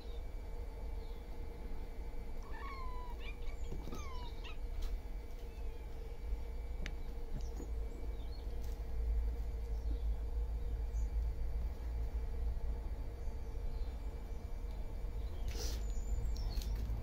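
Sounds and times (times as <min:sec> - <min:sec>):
steady low hum: 0:00.0 - 0:17.0
young cat meowing: 0:02.4 - 0:04.6.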